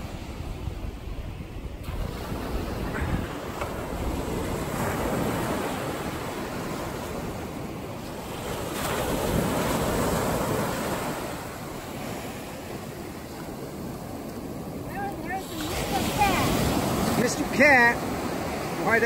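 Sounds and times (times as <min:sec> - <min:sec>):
ocean surf breaking: 0:00.0 - 0:19.0.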